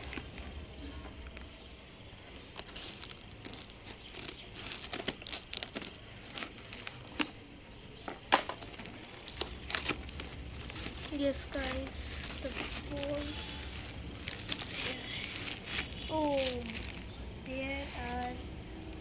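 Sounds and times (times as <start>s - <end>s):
packing tape crinkling and tearing: 0.0s - 7.5s, 8.2s - 17.2s.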